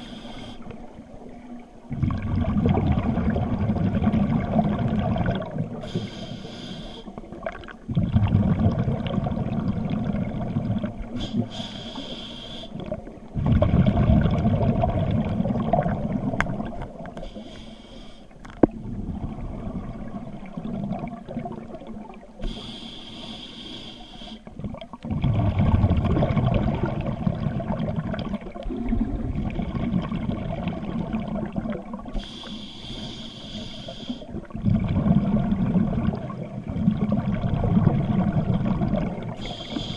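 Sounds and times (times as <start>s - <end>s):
regulator inhalation hiss: 0.0s - 0.7s, 5.8s - 7.2s, 11.2s - 12.8s, 17.2s - 18.3s, 22.4s - 24.5s, 32.2s - 34.3s, 39.4s - 39.9s
low underwater bubbling: 0.7s - 6.0s, 7.2s - 11.5s, 12.8s - 17.2s, 18.4s - 22.4s, 24.5s - 32.2s, 34.3s - 39.9s.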